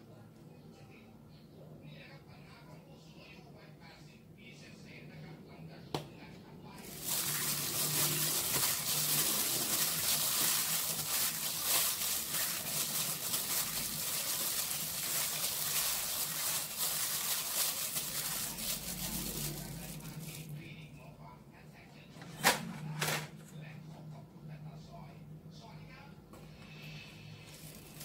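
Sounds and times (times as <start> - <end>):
wet squelching of meat: 6.8 - 20.4
plastic glove crinkling: 6.8 - 20.5, 27.4 - 28.0.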